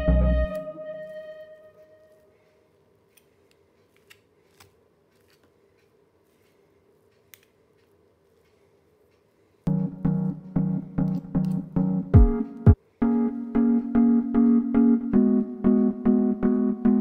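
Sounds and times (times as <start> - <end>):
background music: 0.0 - 2.2, 9.7 - 17.0.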